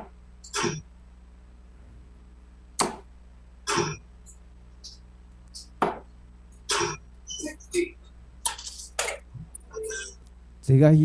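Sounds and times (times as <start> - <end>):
low steady hum: 0.0 - 11.0
darts thudding into dartboard: 2.8 - 3.1, 3.7 - 4.0, 5.8 - 6.1.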